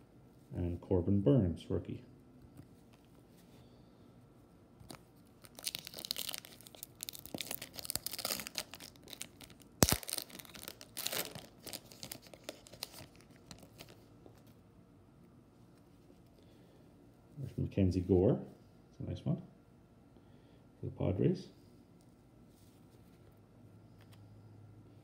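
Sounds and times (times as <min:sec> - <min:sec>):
foil wrapper tearing and crinkling: 0:05.4 - 0:14.0.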